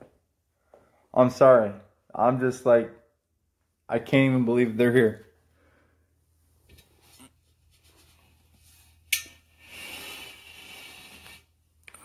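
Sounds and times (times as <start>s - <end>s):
soft rubbing hiss: 6.8s - 11.6s.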